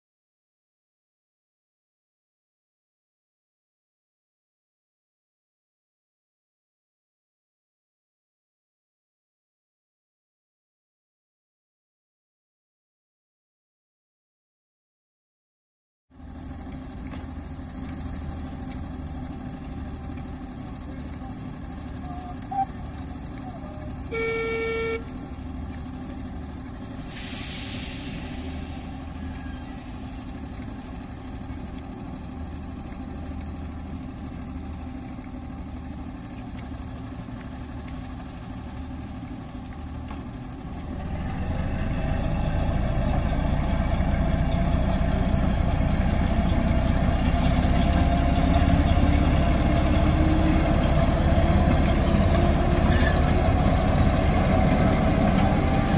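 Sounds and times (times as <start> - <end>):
diesel locomotive engine throbbing: 16.2 - 55.9
locomotive horn: 23.6 - 25.2.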